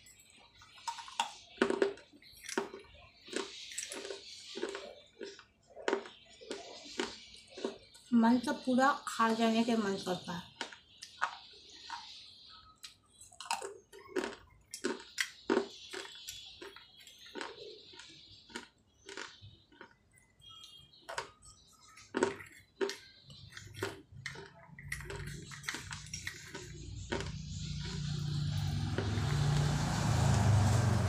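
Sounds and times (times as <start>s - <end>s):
clay crunching in mouth: 0.8s - 8.0s, 12.8s - 20.2s, 21.0s - 29.2s.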